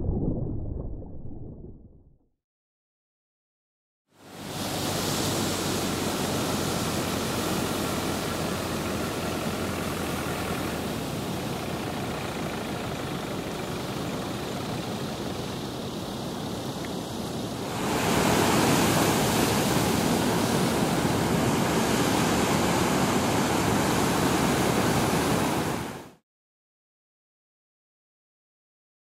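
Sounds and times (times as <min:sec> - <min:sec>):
surf and wind rushing: 0:04.2 - 0:26.2.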